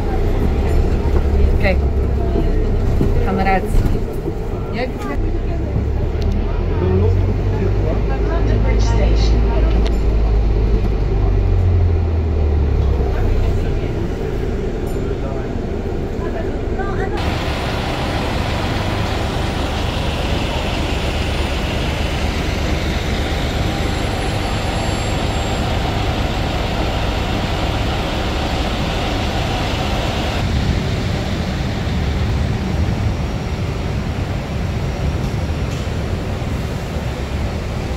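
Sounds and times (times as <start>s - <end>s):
bus engine and road rumble: 0.0s - 37.9s.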